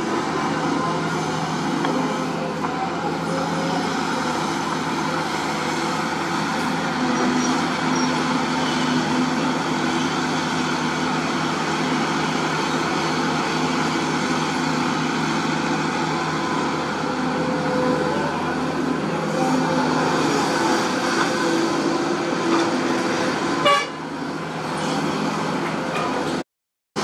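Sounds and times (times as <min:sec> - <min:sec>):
excavator diesel engine running: 0:00.0 - 0:26.4.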